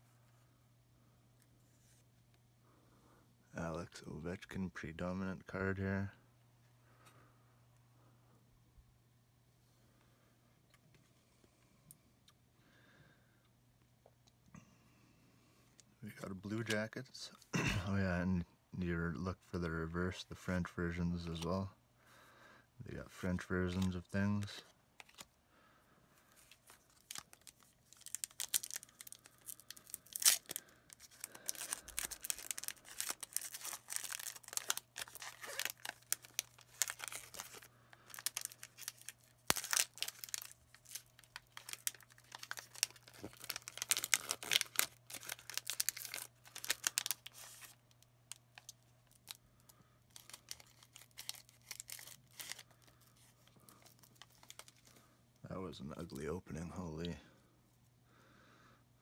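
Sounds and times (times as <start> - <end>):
wrapper tearing and crinkling: 23.6 - 25.3, 26.4 - 55.0.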